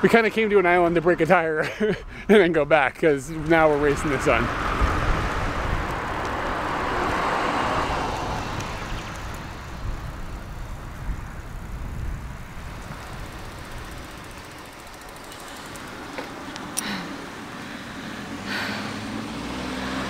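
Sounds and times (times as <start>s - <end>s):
wind rumble on microphone: 3.4s - 14.7s
car passing by: 3.7s - 10.6s, 13.3s - 20.0s.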